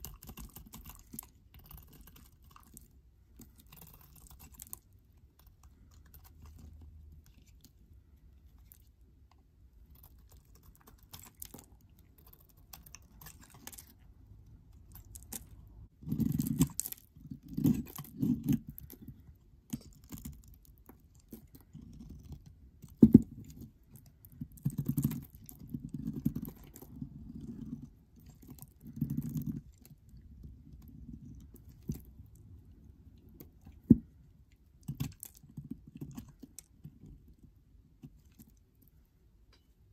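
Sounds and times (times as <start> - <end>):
knife blade scraping soap: 0.0 - 7.7, 14.8 - 20.5.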